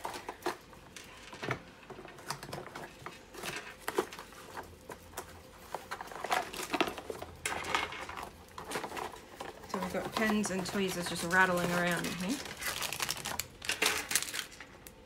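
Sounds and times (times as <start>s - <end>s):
pens rattling in box: 0.0s - 14.7s
plastic wrap rustling: 0.0s - 15.0s
cardboard box rummaging: 2.6s - 14.4s.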